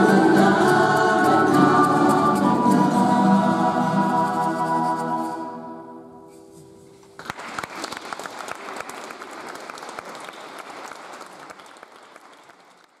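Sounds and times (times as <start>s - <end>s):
choir holding faint note: 0.0s - 6.3s
audience applauding: 7.2s - 13.0s.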